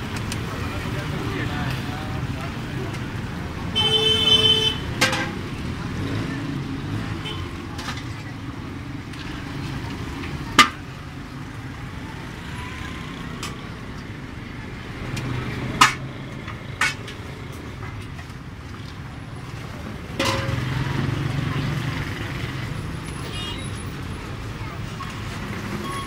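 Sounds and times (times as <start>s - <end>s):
metal skimmer clinking on wok: 20.2s - 20.7s.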